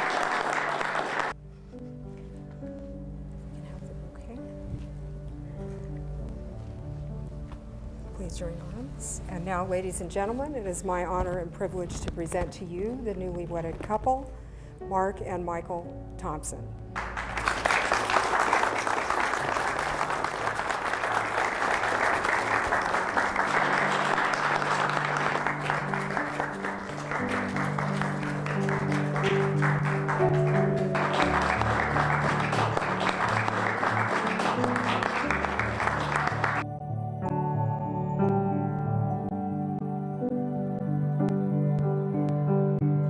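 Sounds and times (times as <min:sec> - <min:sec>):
guests applauding: 0:00.0 - 0:01.4, 0:17.0 - 0:36.6
music playing: 0:00.0 - 0:13.9, 0:14.8 - 0:43.0.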